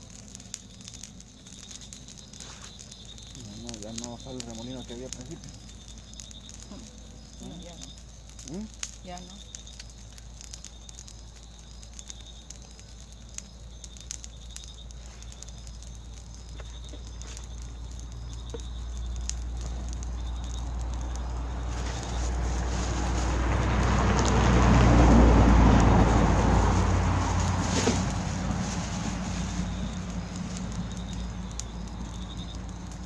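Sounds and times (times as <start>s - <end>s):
fire crackling: 0.0s - 33.0s
low rushing rumble: 19.2s - 33.0s.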